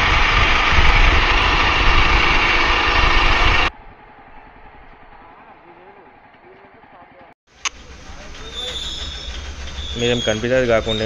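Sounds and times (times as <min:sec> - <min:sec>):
motorcycle engine running: 0:00.0 - 0:03.7, 0:07.6 - 0:11.0
wind and road rush: 0:00.0 - 0:05.5.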